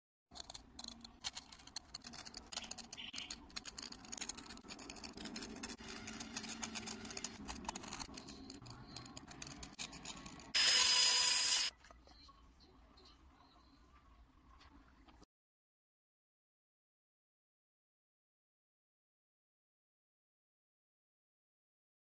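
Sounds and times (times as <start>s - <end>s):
blade scraping eggshell: 0.4s - 11.7s
rotary engraving tool whine: 2.6s - 11.7s.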